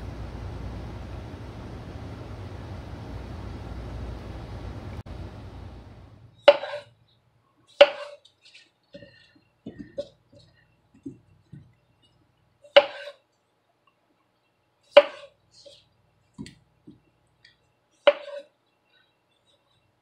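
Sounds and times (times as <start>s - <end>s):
steady hiss: 0.0s - 6.2s
knife chopping on wooden board: 7.8s - 8.2s.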